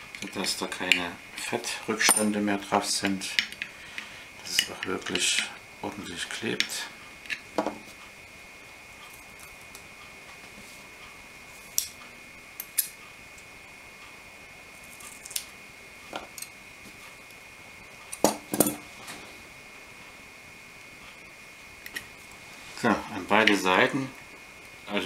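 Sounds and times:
steady high-pitched whine: 0:00.0 - 0:25.0.

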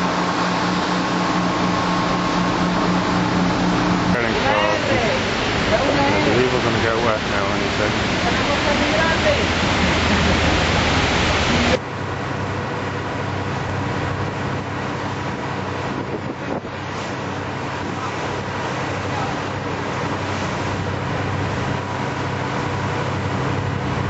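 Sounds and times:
waterfall pouring: 0:00.0 - 0:11.8
boat engine humming: 0:00.0 - 0:24.0
water noise: 0:00.0 - 0:24.0
wind on microphone: 0:13.7 - 0:18.6.

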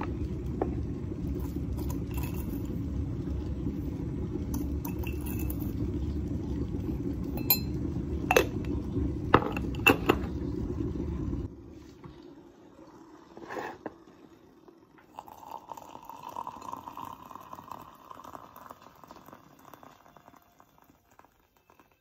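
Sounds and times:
spoon stirring coffee in mug: 0:01.4 - 0:02.8, 0:07.4 - 0:07.7.

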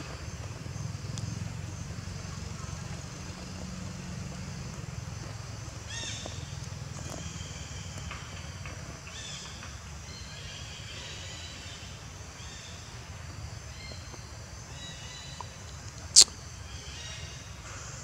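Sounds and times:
high calls: 0:16.1 - 0:16.4.

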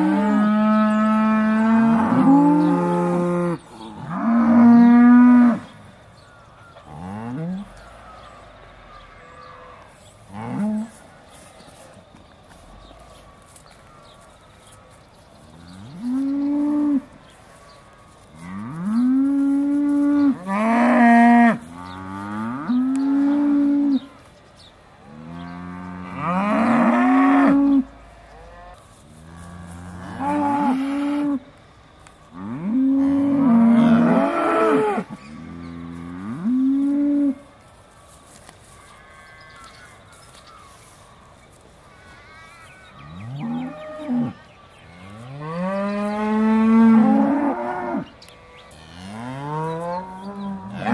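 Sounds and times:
cows mooing: 0:32.4 - 0:37.4, 0:48.7 - 0:50.9.

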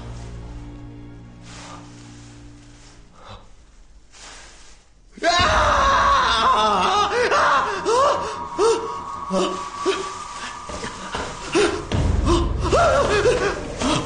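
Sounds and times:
young man screaming: 0:05.2 - 0:10.1
panicked cries and gasps: 0:05.2 - 0:10.2.

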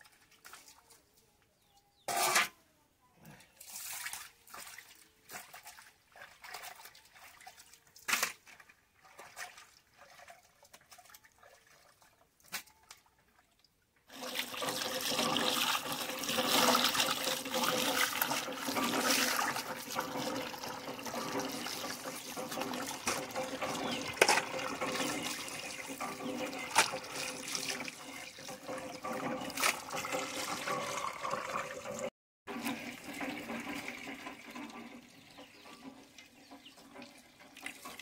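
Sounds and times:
water splashing and dishes rattling: 0:03.5 - 0:13.5, 0:14.1 - 0:38.0
water stream pouring into bucket: 0:14.1 - 0:38.0.

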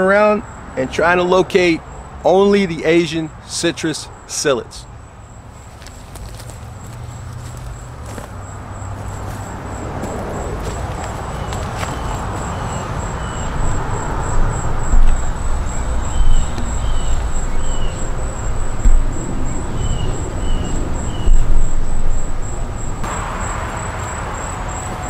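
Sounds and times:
insect trill: 0:00.0 - 0:25.0
wind gusts: 0:04.9 - 0:25.0
bird chirping: 0:10.4 - 0:22.2.

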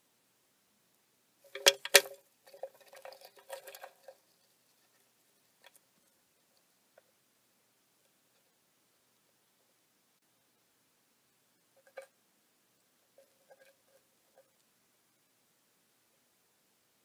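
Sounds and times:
faint ticks: 0:00.9 - 0:07.2
small clicks and scratches: 0:01.5 - 0:07.2, 0:08.0 - 0:09.8, 0:11.7 - 0:12.2, 0:13.0 - 0:14.8.

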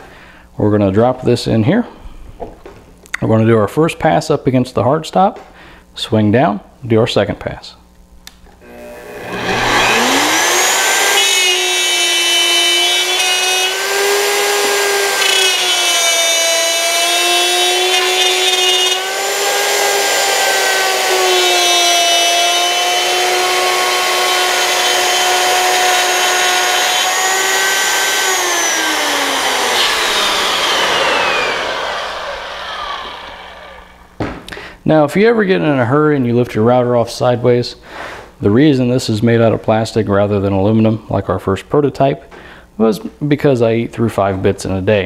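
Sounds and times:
router whining cutting wood: 0:08.6 - 0:34.2.

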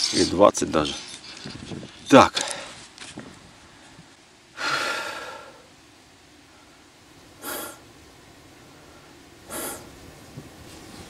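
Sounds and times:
faint steady background noise: 0:00.0 - 0:11.0
short breathy hisses: 0:07.4 - 0:07.8, 0:09.5 - 0:09.9.

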